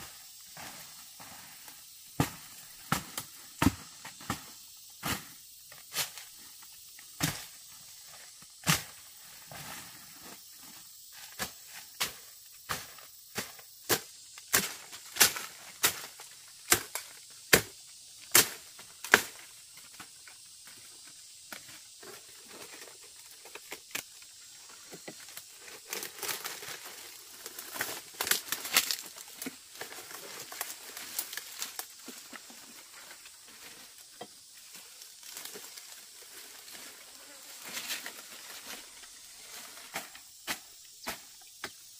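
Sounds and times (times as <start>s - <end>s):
dry fronds crackling and rustling: 25.2s - 34.0s, 34.6s - 40.1s
stems snapping: 27.6s - 29.6s.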